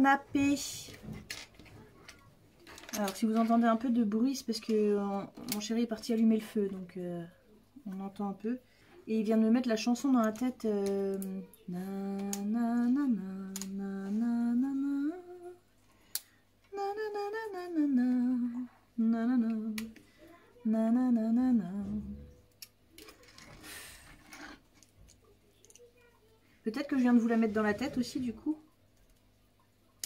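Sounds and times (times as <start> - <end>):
woman humming: 10.9 - 15.6, 16.7 - 19.9, 20.6 - 22.4.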